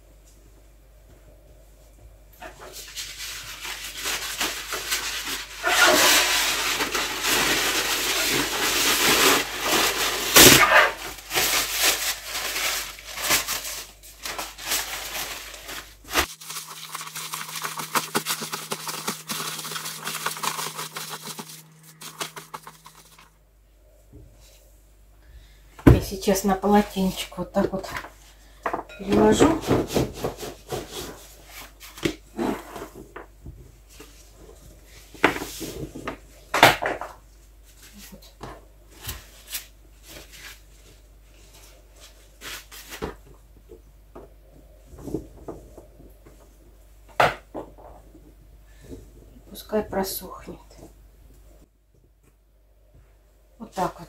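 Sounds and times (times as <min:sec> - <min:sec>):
towel and wrapping rustling: 0:02.6 - 0:23.3.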